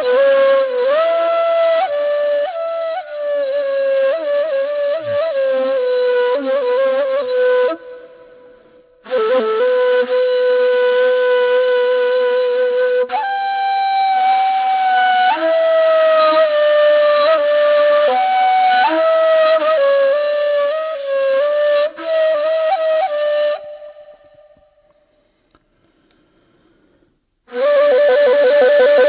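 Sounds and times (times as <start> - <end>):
breathy flute melody: 0.0 - 25.3, 27.5 - 29.0.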